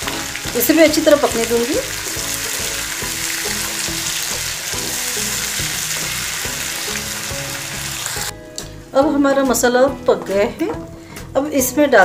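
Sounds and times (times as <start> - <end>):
masala sizzling in oil: 0.0 - 8.4.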